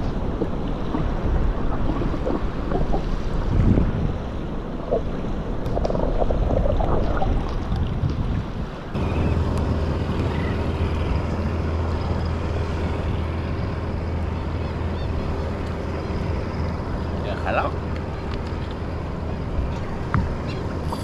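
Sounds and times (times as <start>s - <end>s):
wind on the microphone: 0.0s - 11.4s, 19.2s - 21.0s
steady low hum: 0.0s - 21.0s
water lapping around a kayak: 0.0s - 21.0s.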